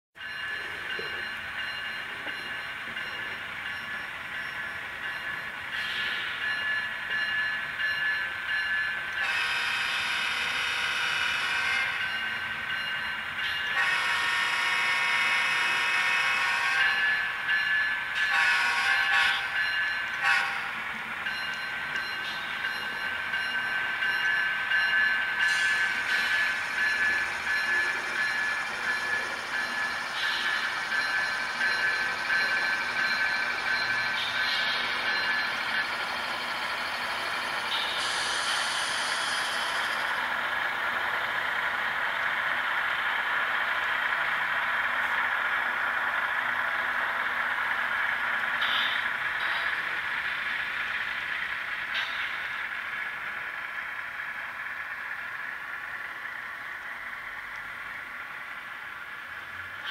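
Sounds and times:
high-pitched locomotive drone: 0.2s - 59.9s
locomotive horn blasts: 9.2s - 12.0s, 13.7s - 17.0s, 18.2s - 19.5s, 20.2s - 20.7s.

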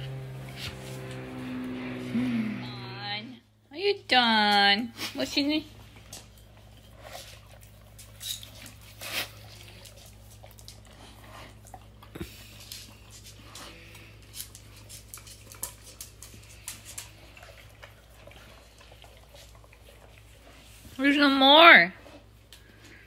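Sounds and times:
faint low hum: 0.0s - 23.0s
dog licking ceramic bowl: 5.7s - 21.4s.

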